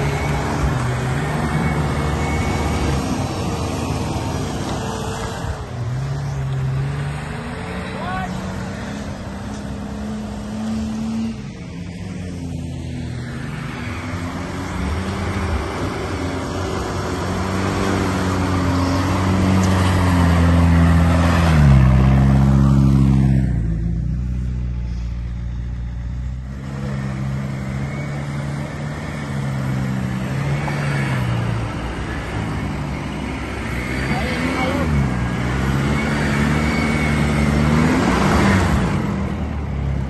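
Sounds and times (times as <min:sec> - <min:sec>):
car engine revving: 0:25.9 - 0:40.0.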